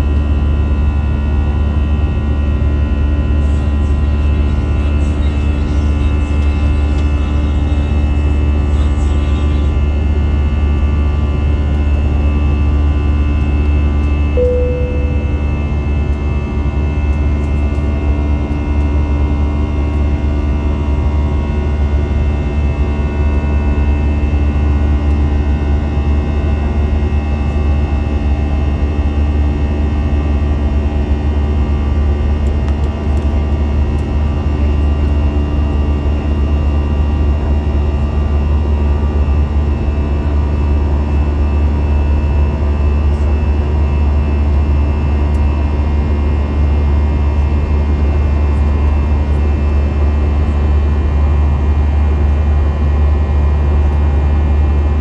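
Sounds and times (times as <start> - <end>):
airplane cabin drone: 0.0 - 55.0
single chime tone: 14.4 - 15.8.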